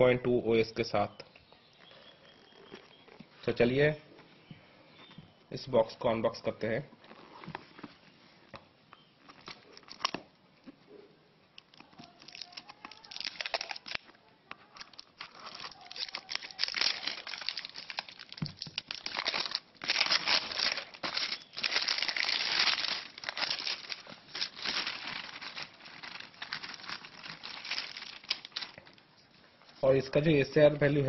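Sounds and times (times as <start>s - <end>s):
plastic wrap crinkling and tearing: 9.2s - 10.7s, 11.6s - 29.4s.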